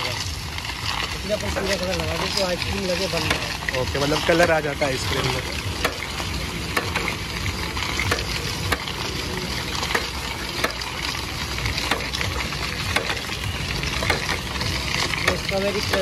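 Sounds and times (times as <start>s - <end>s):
roller drum hissing and rolling: 0.0s - 16.0s.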